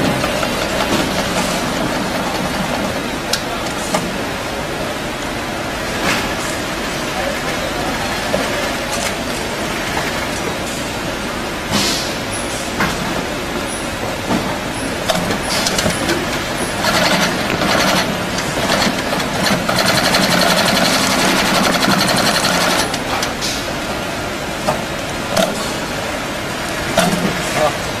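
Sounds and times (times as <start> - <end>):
sewing machine stitching: 16.7 - 23.1.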